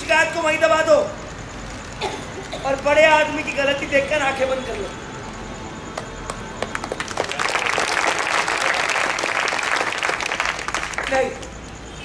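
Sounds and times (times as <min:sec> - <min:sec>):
audience applause: 0:06.0 - 0:11.4.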